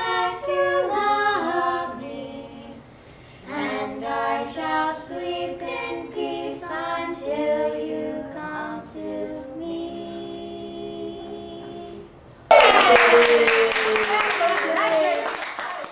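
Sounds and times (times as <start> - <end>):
girls singing a cappella: 0.0 - 12.2
audience clapping and cheering: 12.5 - 15.9.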